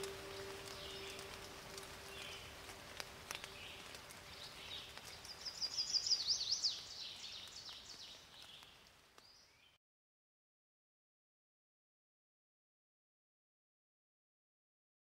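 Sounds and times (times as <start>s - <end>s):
bird singing: 0.0s - 2.6s, 3.3s - 8.7s
faint outdoor hiss: 0.0s - 9.8s.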